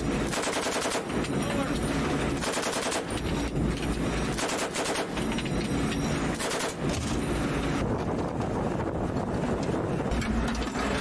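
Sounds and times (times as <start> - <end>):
machine gun firing bursts: 0.3 - 1.1, 2.4 - 3.1, 4.3 - 5.2, 6.4 - 6.8.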